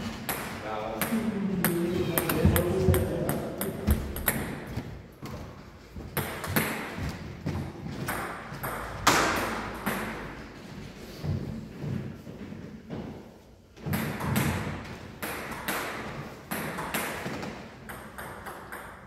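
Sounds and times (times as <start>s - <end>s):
table tennis ball bouncing: 0.1s - 4.8s, 6.2s - 7.1s, 8.0s - 10.4s, 13.8s - 19.0s.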